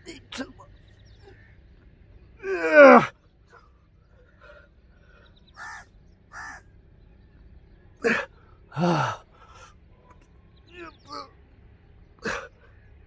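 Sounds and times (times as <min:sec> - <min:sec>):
man grunting and groaning: 0:02.4 - 0:03.1, 0:08.0 - 0:09.2, 0:12.2 - 0:12.5.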